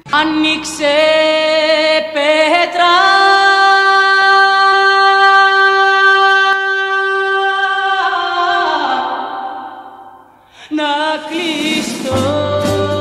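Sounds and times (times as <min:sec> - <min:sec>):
person singing high note: 0:06.7 - 0:10.8.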